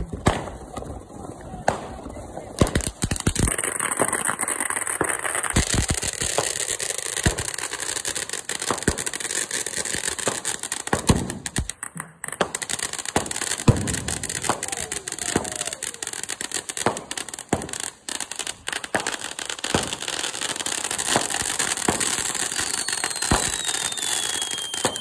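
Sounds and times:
firework pops: 0:00.0 - 0:01.0, 0:01.6 - 0:04.4, 0:05.0 - 0:06.6, 0:10.2 - 0:15.8, 0:23.3 - 0:25.0
firework crackling: 0:00.0 - 0:25.0
firework fountain hissing: 0:00.0 - 0:25.0.

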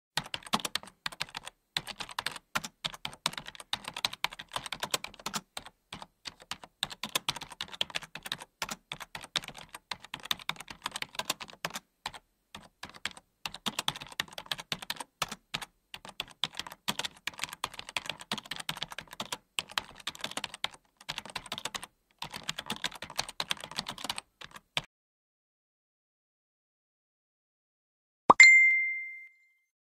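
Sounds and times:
rapid keyboard typing: 0:00.2 - 0:24.9.

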